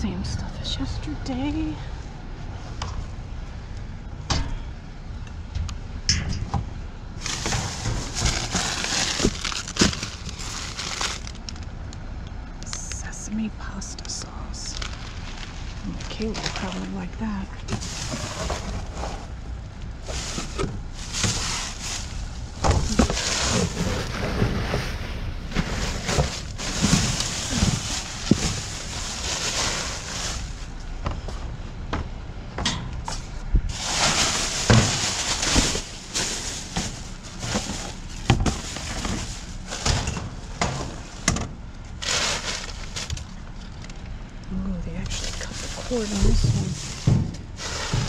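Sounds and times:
plastic bags rustling: 0:07.2 - 0:11.7, 0:14.5 - 0:30.8, 0:33.2 - 0:44.0, 0:45.1 - 0:48.0
boxes and hard items knocking: 0:22.6 - 0:24.9, 0:25.5 - 0:30.0, 0:34.5 - 0:41.4, 0:46.2 - 0:48.0.

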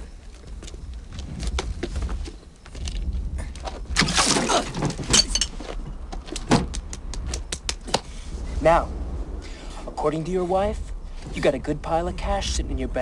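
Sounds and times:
low rumble: 0:05.1 - 0:13.0.

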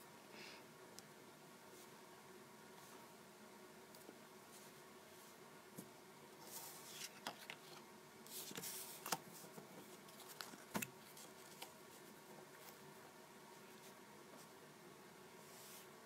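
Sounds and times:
paper rustling: 0:06.4 - 0:12.8.

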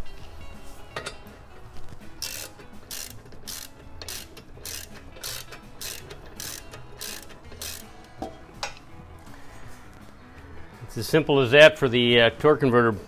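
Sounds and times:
ratchet wrench clicking: 0:02.2 - 0:08.1.

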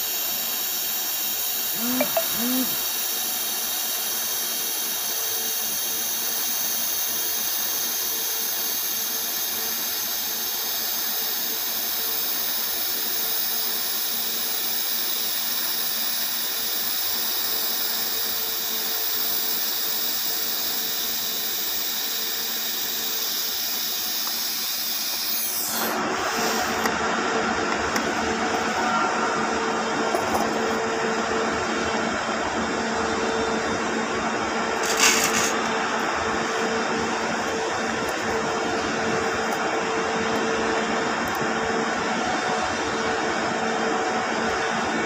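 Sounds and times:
welding arc hiss and buzz: 0:02.7 - 0:28.8, 0:34.6 - 0:39.8.

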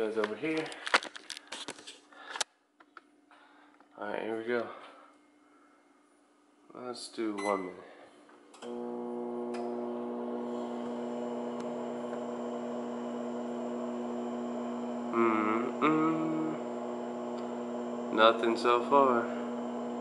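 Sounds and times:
microwave mains hum: 0:08.6 - 0:20.0
person's voice: 0:15.0 - 0:16.8, 0:18.0 - 0:19.7.

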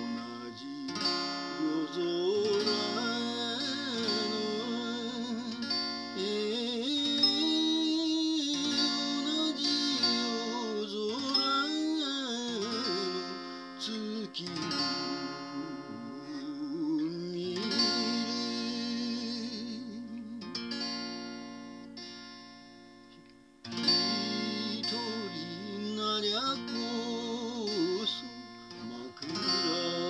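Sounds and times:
man singing with vibrato: 0:00.0 - 0:21.2, 0:23.7 - 0:30.0
strummed acoustic guitar: 0:00.0 - 0:30.0.

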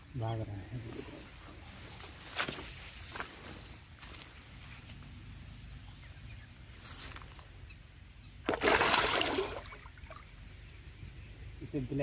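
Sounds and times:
fish splashing in shallow water: 0:08.4 - 0:10.6.

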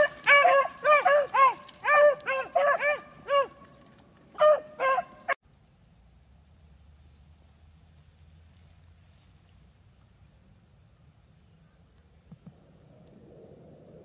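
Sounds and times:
beagles baying: 0:00.0 - 0:05.4.

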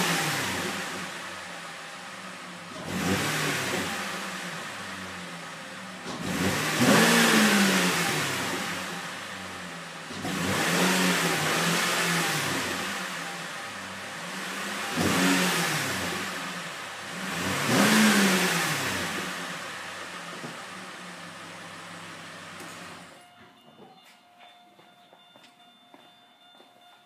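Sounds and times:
car engine revving from idle: 0:00.0 - 0:23.2.

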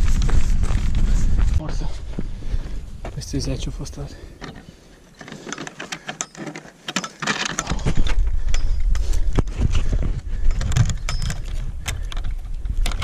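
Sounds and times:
low rumble on microphone: 0:00.0 - 0:03.3
metal chain rattling: 0:05.2 - 0:09.2, 0:10.4 - 0:12.3.

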